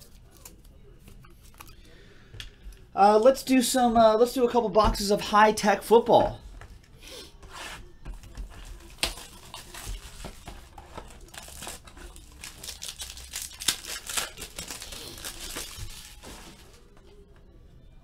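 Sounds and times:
plastic wrap crinkling: 8.7 - 17.0
plastic wrap snapping: 8.9 - 16.8.

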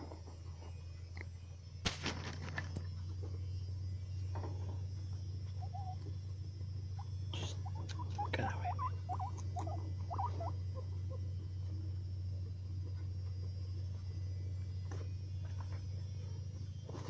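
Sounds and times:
steady low hum: 0.0 - 17.0
guinea pig squeaking: 5.6 - 6.1, 6.9 - 11.3.

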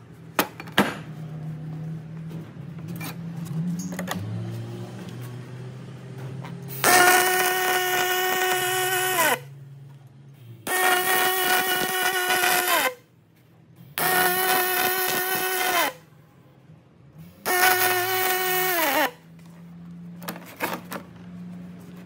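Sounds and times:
welding arc buzzing: 6.7 - 9.5, 10.7 - 13.0, 14.0 - 16.0, 17.4 - 19.2.

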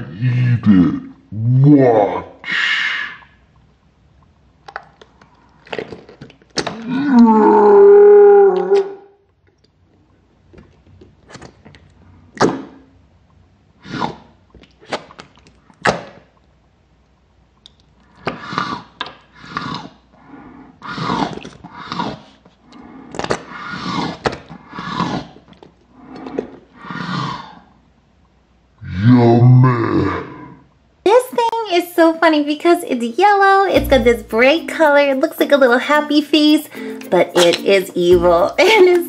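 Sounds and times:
growling retching voice: 0.0 - 3.2, 6.6 - 9.0, 28.8 - 30.6
squishy toy squelching slime: 4.6 - 7.0, 9.5 - 12.9, 13.8 - 16.4, 17.6 - 27.4.

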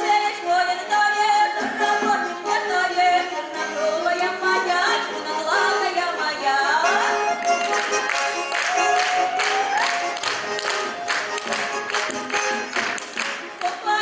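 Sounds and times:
instrumental accompaniment: 0.0 - 14.0
girl singing folk song: 13.6 - 14.0.

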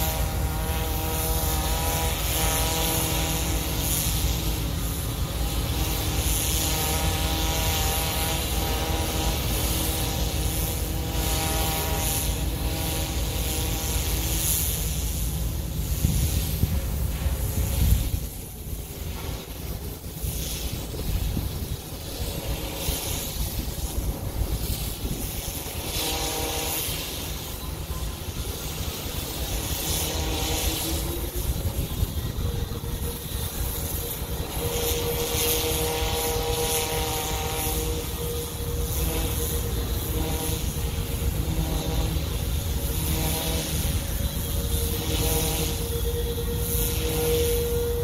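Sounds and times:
pressure washer droning: 0.0 - 48.0.

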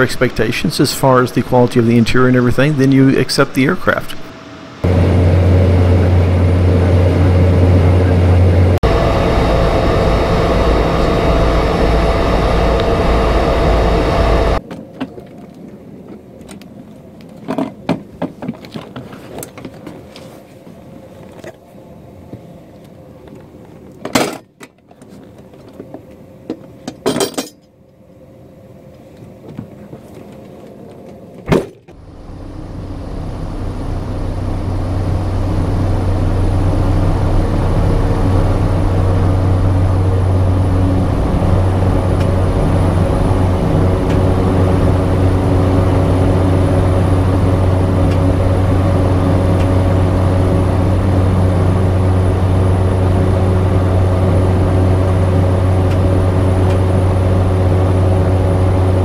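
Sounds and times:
turboprop engine drone: 0.0 - 14.6, 30.0 - 59.0.

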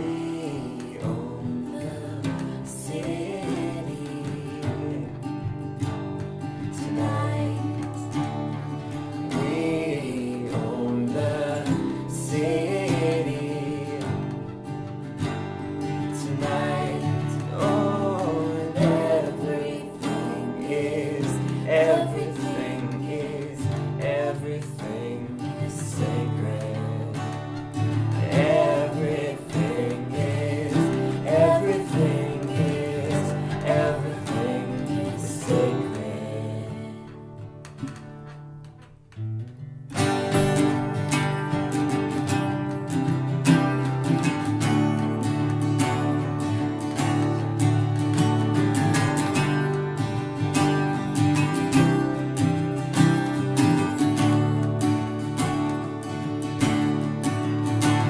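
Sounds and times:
man singing: 0.0 - 5.5, 6.7 - 8.2, 9.1 - 14.5, 15.9 - 37.3
woman singing: 0.0 - 5.7, 6.6 - 8.6, 9.2 - 14.6, 15.9 - 37.5
acoustic guitars strumming: 0.0 - 58.0.

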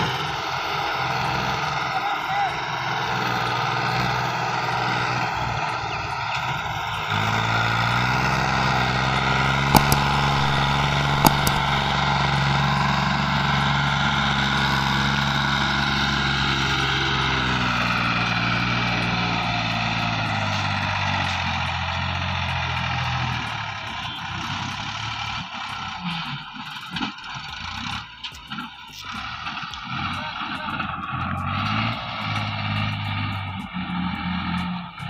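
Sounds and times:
tractor diesel engine droning: 0.0 - 35.0
sharp clicks: 9.8 - 12.0.

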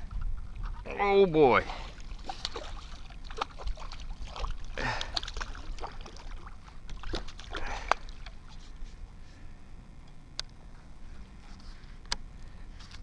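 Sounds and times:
water splashing and sloshing: 0.0 - 9.0.

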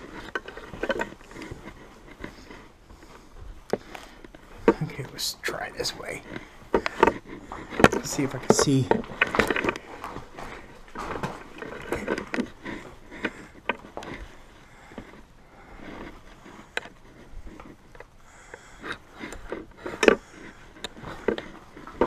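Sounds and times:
footsteps crunching on debris: 0.0 - 14.9
scrapes and knocks: 0.0 - 22.0.

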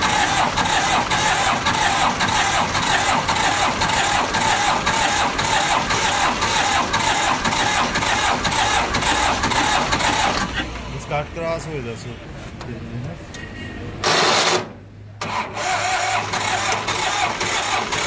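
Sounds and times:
tractor diesel engine knocking: 0.0 - 10.6.

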